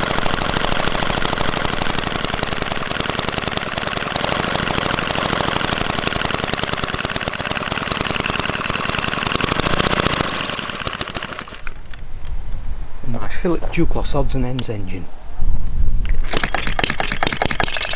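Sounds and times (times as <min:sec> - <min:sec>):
small engine running fast: 0:00.0 - 0:11.8, 0:16.2 - 0:17.9.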